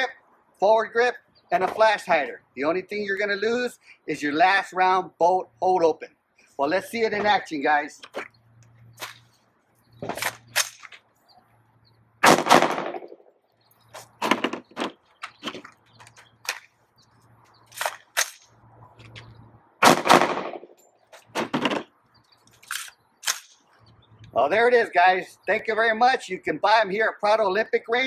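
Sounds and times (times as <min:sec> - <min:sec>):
rifle shots: 0:12.2 - 0:13.2, 0:19.8 - 0:20.7.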